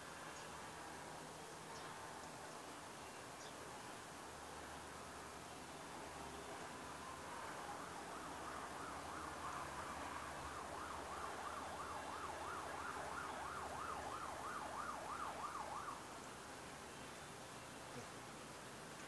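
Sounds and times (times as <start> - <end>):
faint siren yelping: 7.3 - 16.0.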